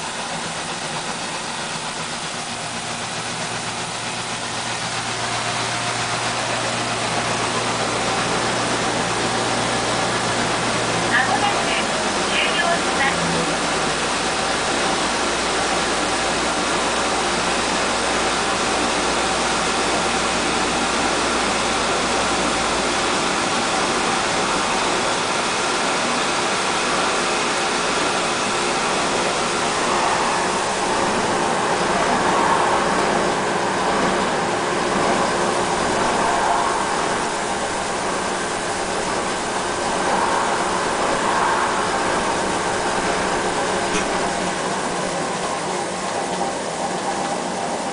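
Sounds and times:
rice milling machine whirring: 0.0 - 47.9
low hum: 28.0 - 47.7.

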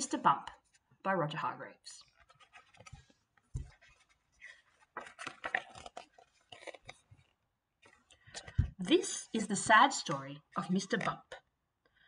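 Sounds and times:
paper and card rustling: 2.0 - 9.1.

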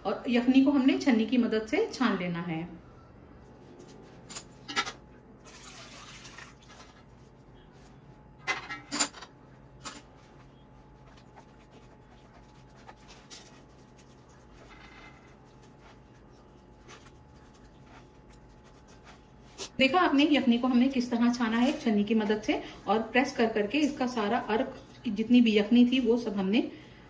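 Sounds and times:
liquid pouring: 5.4 - 7.0.

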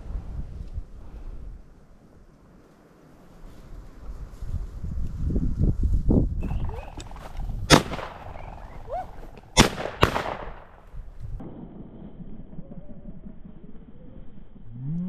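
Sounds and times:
shotgun shots: 6.9 - 10.9.

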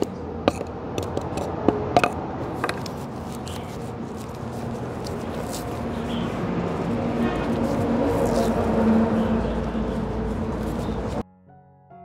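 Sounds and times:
hammer tapping on rock: 0.0 - 2.9
steady rumbling: 0.0 - 11.2.

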